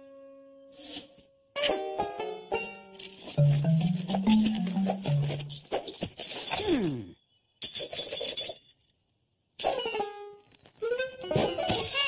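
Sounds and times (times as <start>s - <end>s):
sudden jangle: 3.0s - 7.1s
cartoon junk clattering in metal can: 11.3s - 12.0s.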